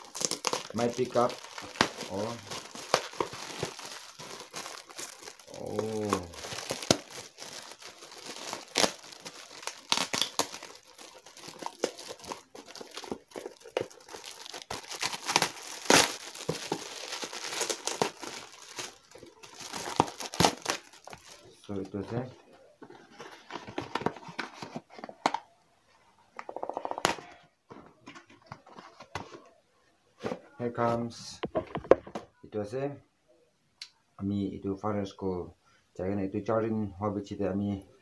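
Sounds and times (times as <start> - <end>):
metallic gift wrap crinkling and tearing: 0.0 - 25.4.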